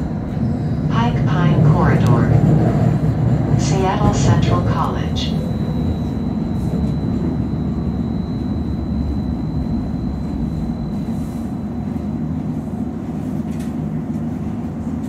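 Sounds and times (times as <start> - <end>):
streetcar rumbling on rails: 0.0 - 15.0
thin high whine: 4.5 - 12.7.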